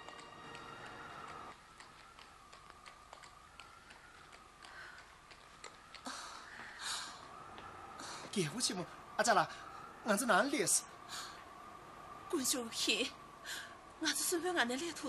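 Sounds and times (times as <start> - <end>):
soft music: 0.0 - 1.5
horse hooves on street: 0.0 - 8.0
footsteps on hard street: 0.0 - 8.4.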